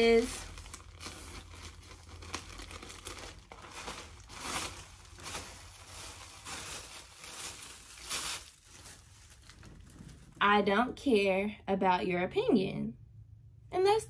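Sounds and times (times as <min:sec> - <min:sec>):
plastic bag crinkling and rustling: 0:00.0 - 0:10.5.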